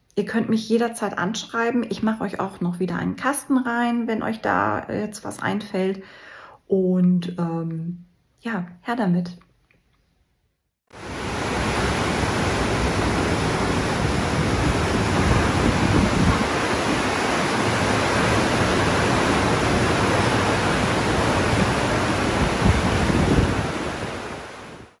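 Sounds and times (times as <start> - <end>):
churning water rushing: 10.9 - 25.0
wind buffeting microphone: 11.1 - 24.8.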